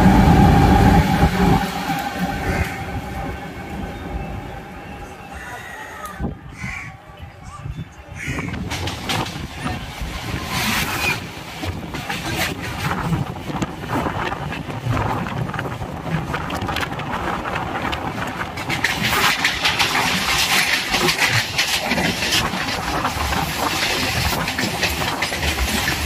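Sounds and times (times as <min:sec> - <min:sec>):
train passing with rush of air: 0:00.0 - 0:06.7, 0:08.3 - 0:26.0
wind buffeting microphone: 0:00.0 - 0:26.0
wheels clattering over rail joints: 0:08.4 - 0:26.0.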